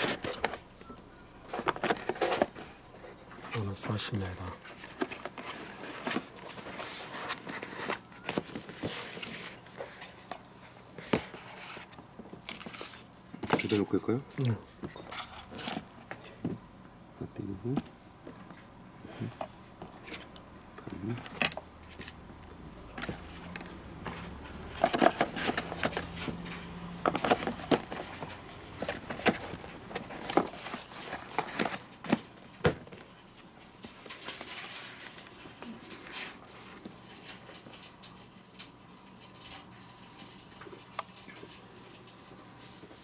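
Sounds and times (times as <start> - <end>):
cardboard box being packed: 4.3 - 10.0, 27.0 - 33.1.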